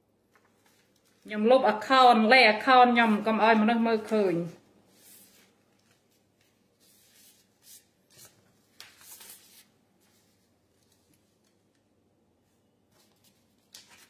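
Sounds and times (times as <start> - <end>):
faint rustling and handling: 0.2 - 1.3, 4.4 - 14.0.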